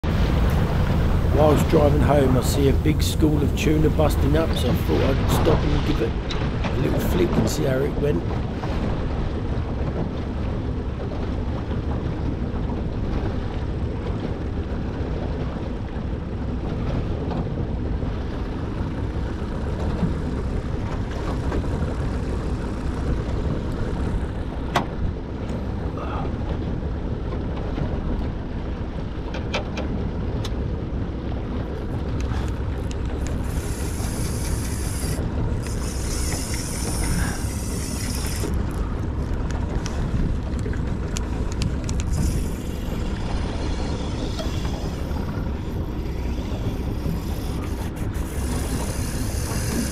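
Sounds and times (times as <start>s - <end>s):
wind buffeting microphone: 0.0s - 49.9s
fishing reel whirring: 33.1s - 38.8s, 41.9s - 49.9s.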